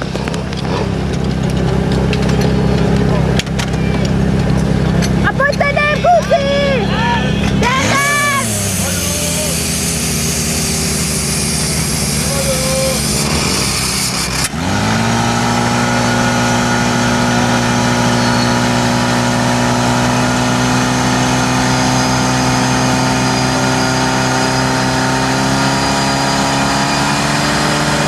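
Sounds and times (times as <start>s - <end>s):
pump engine running flat out: 7.8s - 28.0s.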